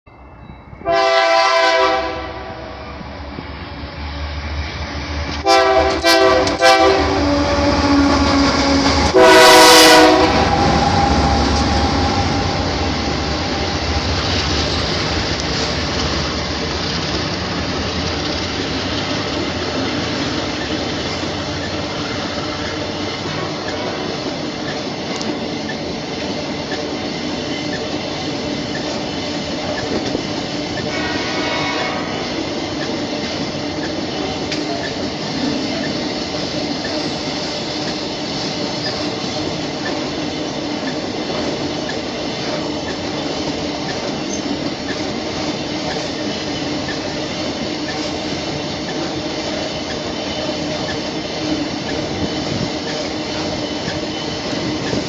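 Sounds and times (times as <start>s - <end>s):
train wagons rolling on track: 0.1s - 55.0s
locomotive horn blasts: 0.8s - 2.8s, 5.4s - 12.4s, 30.8s - 32.4s.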